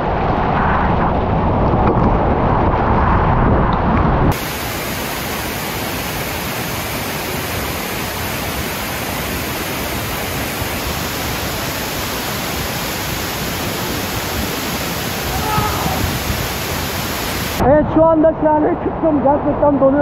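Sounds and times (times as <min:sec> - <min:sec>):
waterfall pouring: 0:04.3 - 0:17.6.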